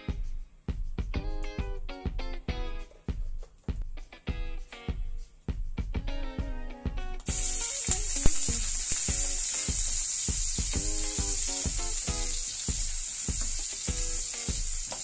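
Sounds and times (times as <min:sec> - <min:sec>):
ginger sizzling in hot oil: 0:07.2 - 0:15.0.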